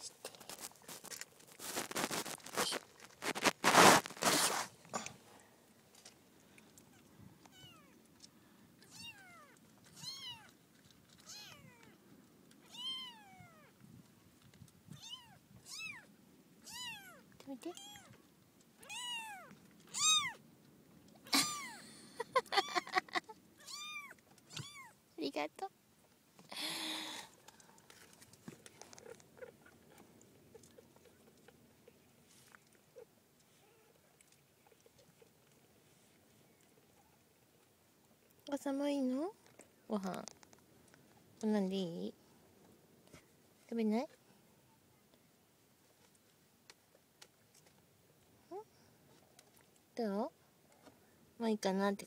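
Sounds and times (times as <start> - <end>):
rustle: 0.0 - 52.0
kitten squeaks: 7.5 - 7.9, 8.9 - 10.5, 11.2 - 11.8, 12.6 - 13.7, 15.0 - 18.1, 18.8 - 20.4, 23.6 - 24.9
kitten mewing: 18.8 - 20.4, 21.3 - 21.8, 23.6 - 24.9.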